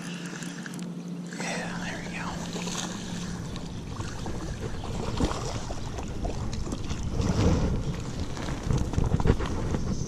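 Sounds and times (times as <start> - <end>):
fish splashing in water: 2.2 - 9.4
wind buffeting microphone: 2.2 - 10.0.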